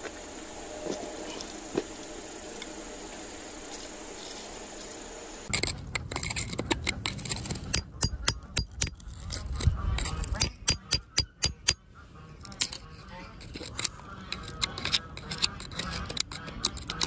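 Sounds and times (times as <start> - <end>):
metal tool scraping gritty soil: 5.5 - 17.0.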